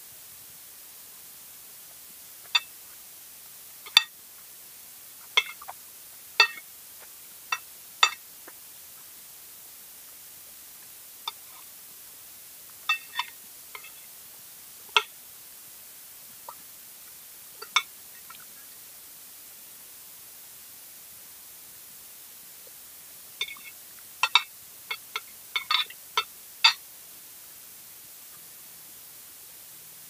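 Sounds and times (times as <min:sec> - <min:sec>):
cutlery clinking on ceramic plate: 0:05.4 - 0:05.7, 0:06.4 - 0:06.6, 0:07.5 - 0:08.2, 0:12.9 - 0:14.0, 0:23.4 - 0:26.8.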